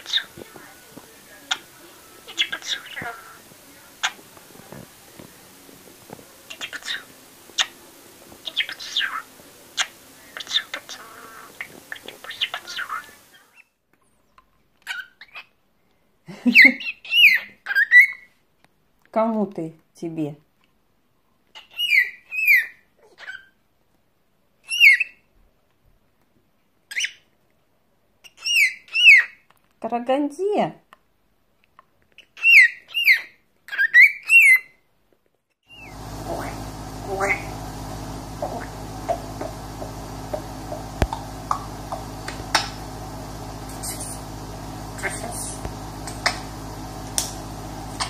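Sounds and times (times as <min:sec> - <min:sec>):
electrical hum: 0:00.0 - 0:13.4, 0:35.7 - 0:48.0
parrot whistling: 0:01.4 - 0:04.2, 0:06.5 - 0:07.8, 0:08.4 - 0:13.2, 0:35.7 - 0:37.6, 0:43.6 - 0:44.3.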